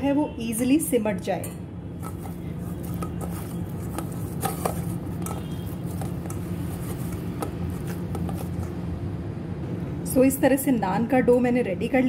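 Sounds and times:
steady low hum: 0:01.6 - 0:10.2
dough squishing: 0:02.0 - 0:08.8.

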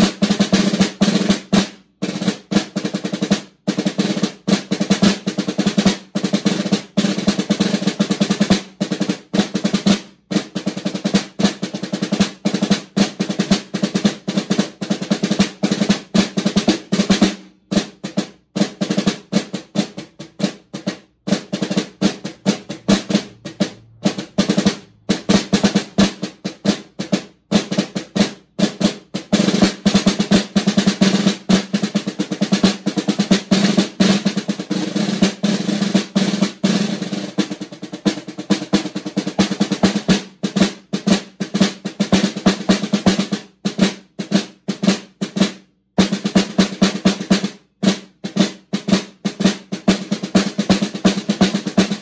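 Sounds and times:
snare drum rolls: 0:00.0 - 0:52.0.

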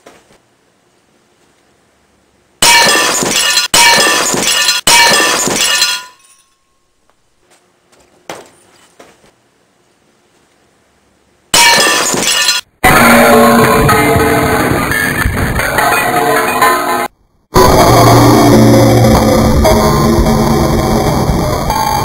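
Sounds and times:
glasses shattering: 0:02.6 - 0:06.7, 0:11.6 - 0:12.7
small glass clinks: 0:04.6 - 0:06.7.

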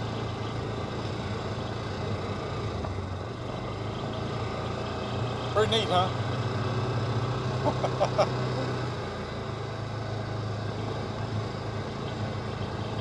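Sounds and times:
utility vehicle engine running: 0:00.0 - 0:13.0.

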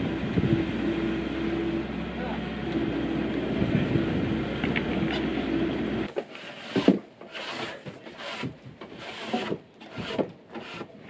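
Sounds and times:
truck engine rumbling: 0:00.0 - 0:11.0
timber boards scraping: 0:06.0 - 0:11.0.

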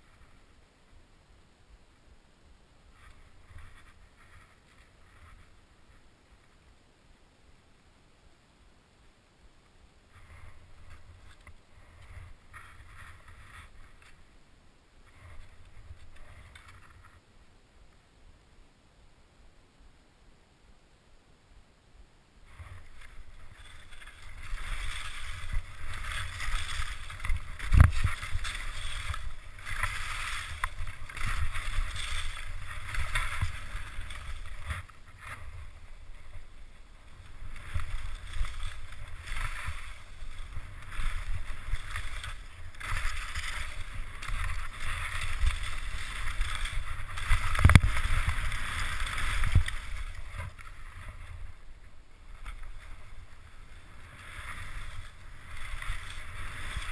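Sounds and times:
wind rumbling on microphone: 0:02.9 - 0:06.9, 0:09.9 - 0:17.4, 0:22.4 - 0:56.9
skis scraping on snow: 0:10.1 - 0:14.3, 0:15.0 - 0:17.2, 0:22.4 - 0:56.9.

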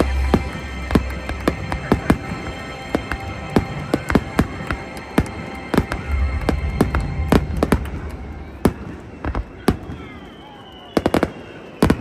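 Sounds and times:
fireworks bangs and cracks: 0:00.0 - 0:12.0
low rumble: 0:03.3 - 0:09.6.

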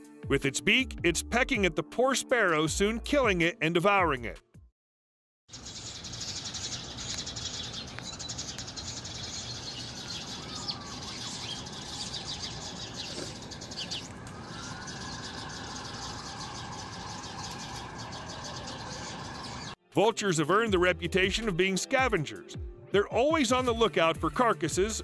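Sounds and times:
small birds chirping: 0:05.5 - 0:19.8
traffic hum: 0:05.5 - 0:19.8
distant siren wail: 0:09.0 - 0:19.8.

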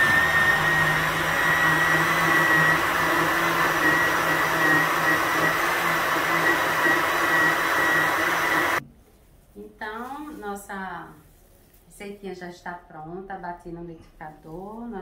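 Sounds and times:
blender motor whine: 0:00.0 - 0:08.8
liquid swirling in blender: 0:00.0 - 0:08.8.

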